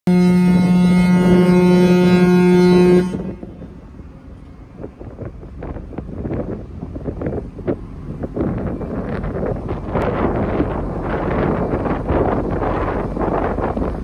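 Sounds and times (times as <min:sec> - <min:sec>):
ship's whistle long blast: 0:00.1 - 0:03.6
wind buffeting microphone: 0:00.1 - 0:14.0.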